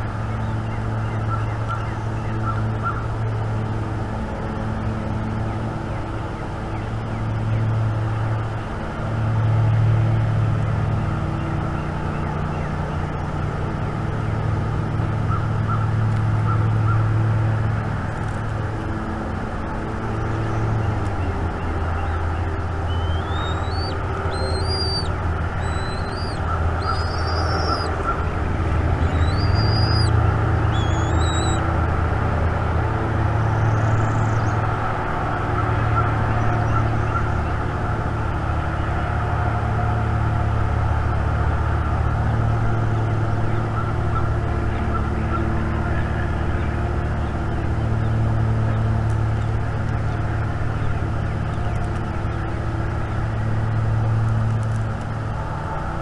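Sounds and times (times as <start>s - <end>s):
low outdoor rumble: 0.0s - 56.0s
songbird whistling: 22.8s - 28.3s, 29.0s - 31.7s.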